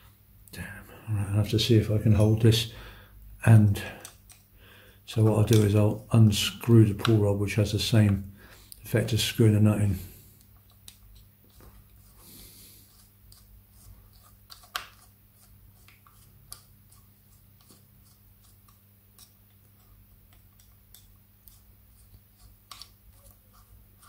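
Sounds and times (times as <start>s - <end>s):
steady low hum: 0.0s - 14.4s.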